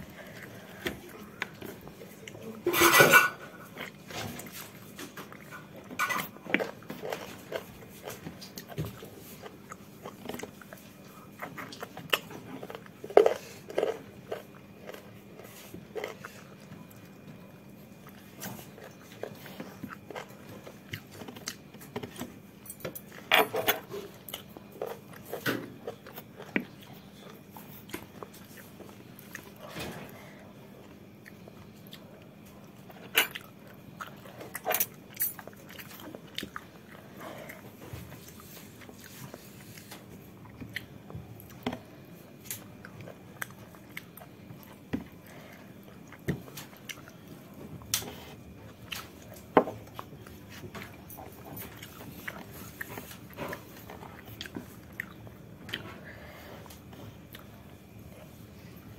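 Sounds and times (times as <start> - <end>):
person chewing with mouth smacks: 30.8 - 58.8.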